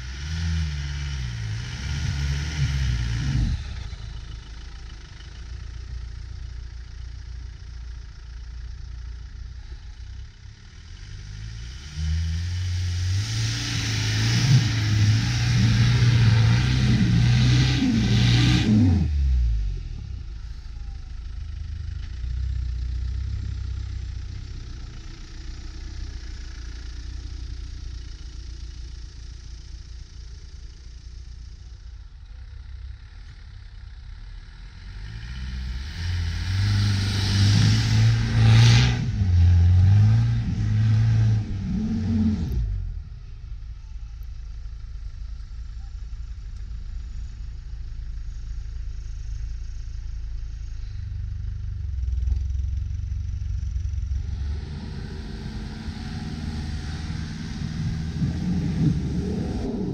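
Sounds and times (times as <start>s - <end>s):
car engine revving: 0.0s - 5.8s, 10.8s - 20.0s, 34.6s - 43.4s, 51.8s - 59.9s.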